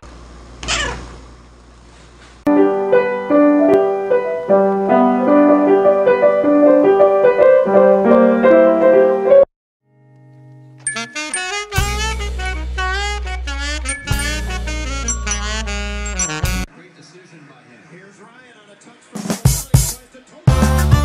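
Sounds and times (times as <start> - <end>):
piano playing notes: 2.5 - 16.7.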